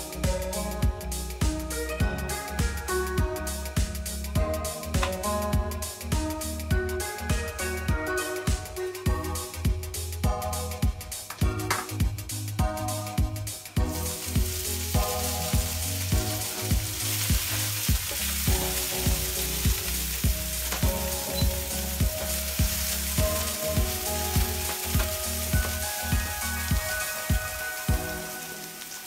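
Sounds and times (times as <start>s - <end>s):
background music with steady beat: 0.0s - 29.0s
vegetables sizzling in oil: 0.0s - 29.0s.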